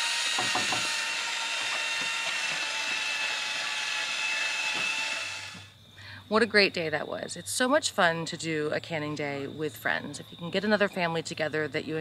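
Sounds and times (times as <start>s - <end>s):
electric drill whining: 0.0s - 5.8s.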